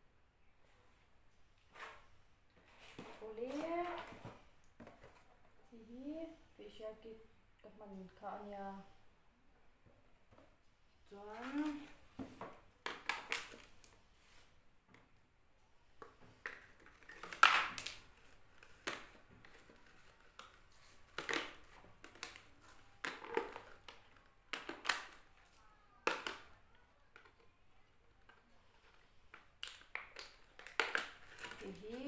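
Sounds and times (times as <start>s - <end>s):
small objects clicking and rustling: 16.0s - 32.0s.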